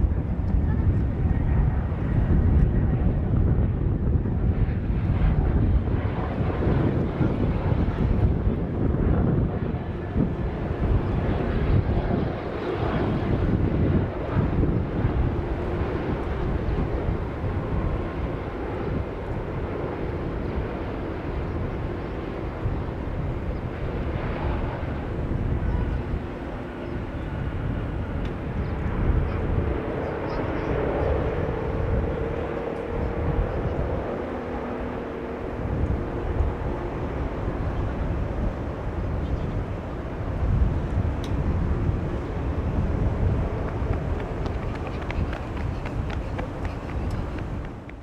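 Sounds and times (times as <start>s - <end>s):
jet engine rumble: 0.0s - 48.0s.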